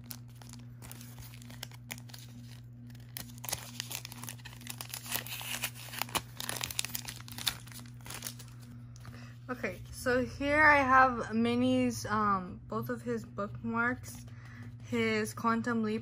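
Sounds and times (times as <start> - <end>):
plastic sleeve crinkling and tearing: 0.0 - 8.8.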